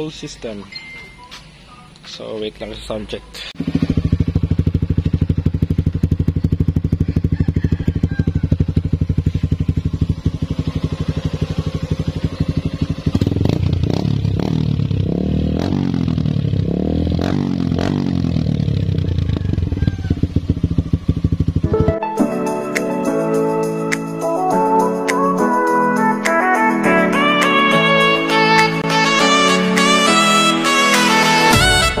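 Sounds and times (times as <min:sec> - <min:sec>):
motorcycle engine idling and revving: 0:02.6 - 0:21.9.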